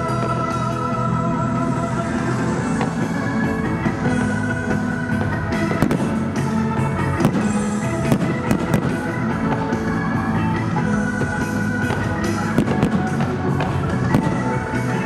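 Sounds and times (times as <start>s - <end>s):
loud anime song music: 0.0s - 15.0s
firework bursts banging: 4.2s - 9.9s, 11.8s - 15.0s.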